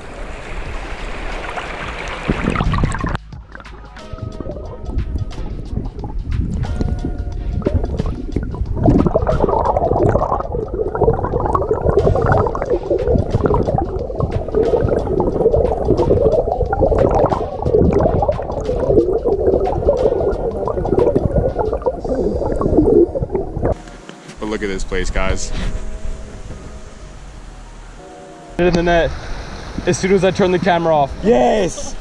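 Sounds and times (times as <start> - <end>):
stream water rushing underwater: 0.0 - 23.8, 28.6 - 31.3.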